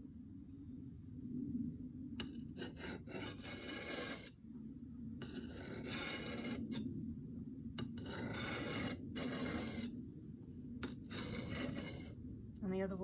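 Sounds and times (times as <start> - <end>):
blade scraping on sharpening stone: 2.6 - 4.3, 5.2 - 6.8, 7.8 - 9.9, 10.8 - 12.2.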